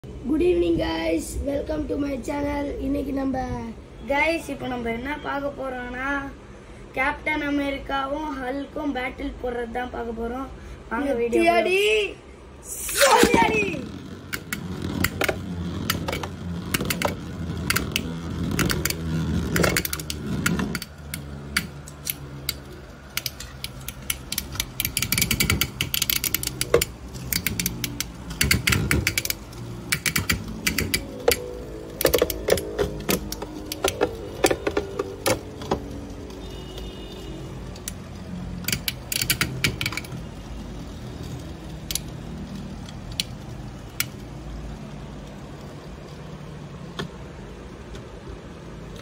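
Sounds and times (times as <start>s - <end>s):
spinning tops whirring: 12.7s - 47.6s
spinning tops clacking together: 12.9s - 36.4s.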